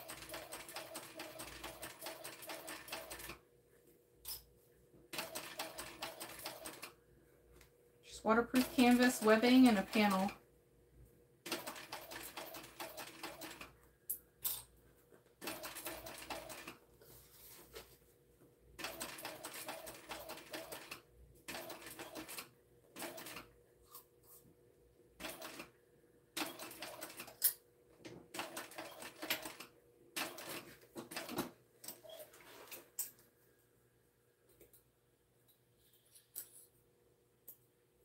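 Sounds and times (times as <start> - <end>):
sewing machine stitching: 0.0 - 3.4, 5.1 - 7.0, 8.3 - 10.4, 11.4 - 13.7, 15.4 - 16.8, 18.8 - 23.6, 25.2 - 25.7, 26.4 - 27.4, 28.3 - 32.8.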